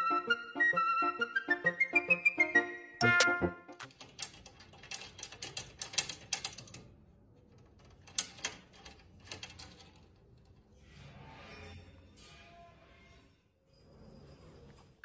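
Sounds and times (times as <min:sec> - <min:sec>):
metal latch rattling and clicking: 0:03.8 - 0:07.0, 0:07.6 - 0:10.3.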